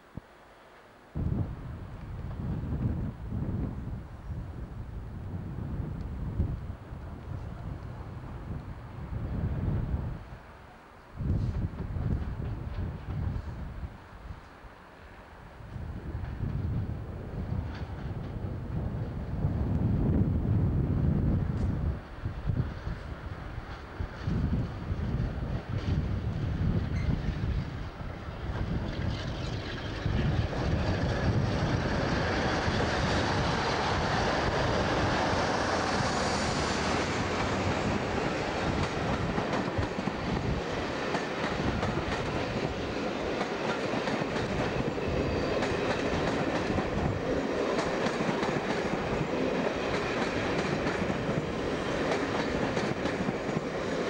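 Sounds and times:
diesel locomotive working uphill: 1.2s - 54.0s.

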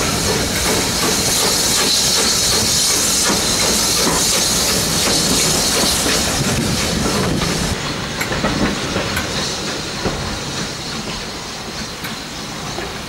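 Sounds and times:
steam hissing: 0.0s - 13.0s
train rumbling: 0.0s - 13.0s.

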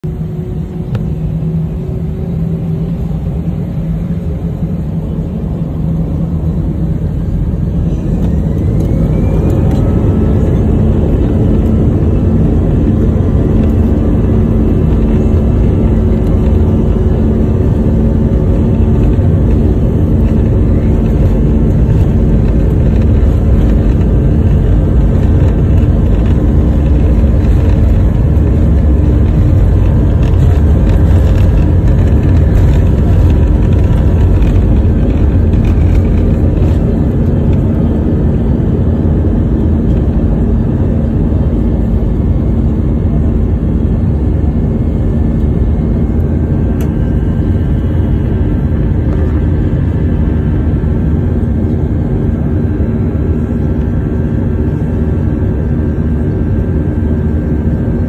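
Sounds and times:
rising engine whine: 0.0s - 58.0s
jet engines spooling up: 0.1s - 42.8s.

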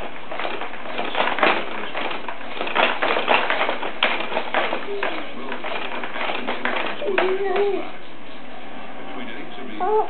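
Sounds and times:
baby jumper clattering: 0.0s - 8.0s.

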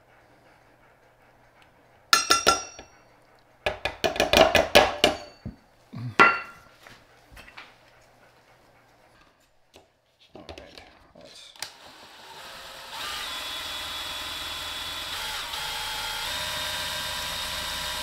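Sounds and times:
metal measuring cups clinking: 2.2s - 2.9s.

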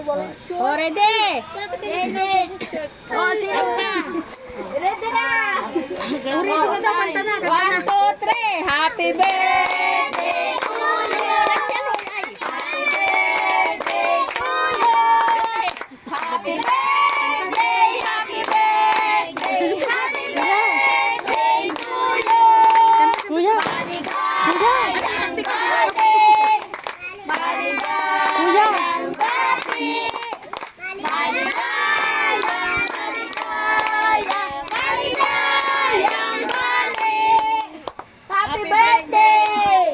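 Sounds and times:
high voices singing: 8.9s - 37.8s
hands clapping: 9.2s - 38.1s.

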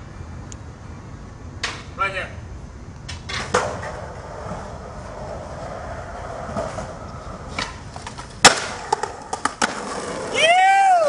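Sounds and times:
skateboard wheels rolling on pavement: 0.0s - 11.0s
loud sharp crack: 8.4s - 9.8s.

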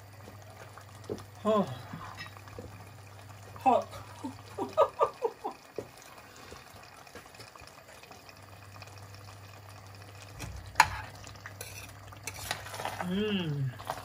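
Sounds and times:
stew simmering in a pot: 0.0s - 14.0s
person vocal reaction: 13.0s - 13.8s.

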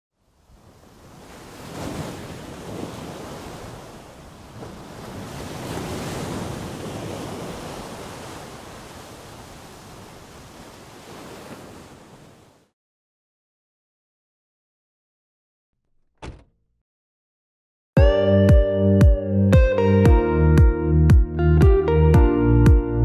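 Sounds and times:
waves washing on beach: 0.2s - 12.7s.

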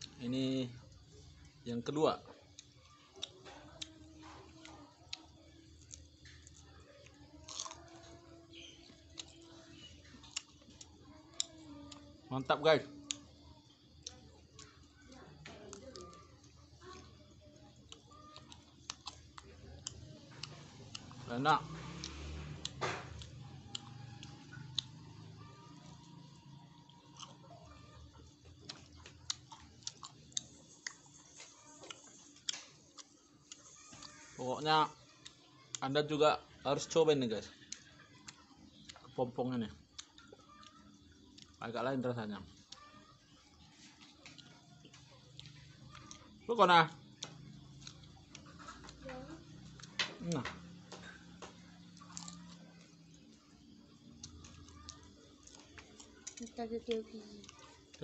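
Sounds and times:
person chewing: 2.4s - 12.1s, 13.0s - 21.2s, 21.8s - 25.4s, 27.0s - 34.4s, 39.8s - 41.6s, 43.7s - 46.4s, 47.1s - 56.6s, 57.4s - 58.0s
man biting and chewing: 7.4s - 8.1s, 27.0s - 27.4s.

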